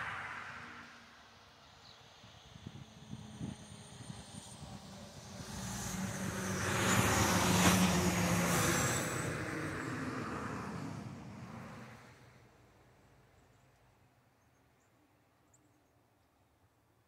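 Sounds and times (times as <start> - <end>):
vehicle engine passing by: 2.6 - 12.3.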